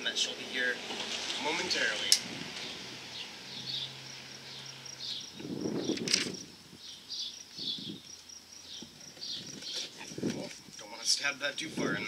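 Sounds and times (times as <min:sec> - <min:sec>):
steady high chirping: 0:02.6 - 0:10.7.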